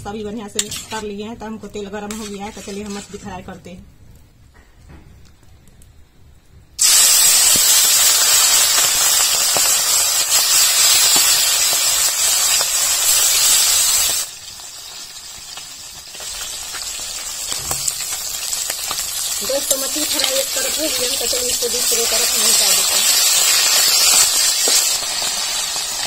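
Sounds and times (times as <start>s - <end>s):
fish sizzling in hot oil: 6.8s - 26.0s.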